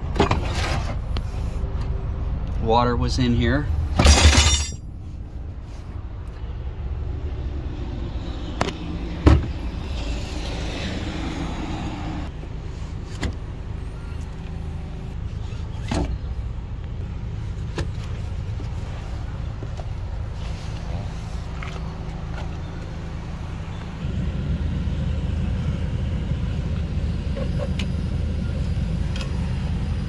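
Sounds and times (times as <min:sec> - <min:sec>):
steady low rumble: 0:23.0 - 0:30.0.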